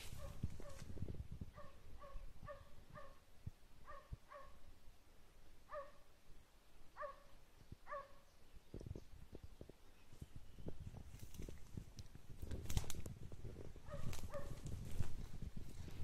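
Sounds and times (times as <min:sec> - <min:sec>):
hound barking: 0:00.2 - 0:00.8, 0:01.5 - 0:03.2, 0:03.8 - 0:04.6, 0:05.7 - 0:06.0, 0:07.0 - 0:07.3, 0:07.9 - 0:08.2, 0:13.8 - 0:14.6.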